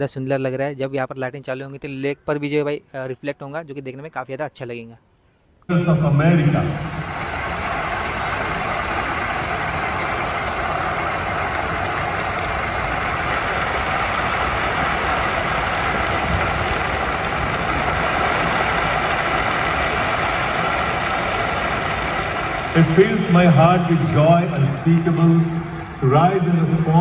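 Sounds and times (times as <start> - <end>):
rumbling soundtrack over loudspeakers: 5.7 - 27.0.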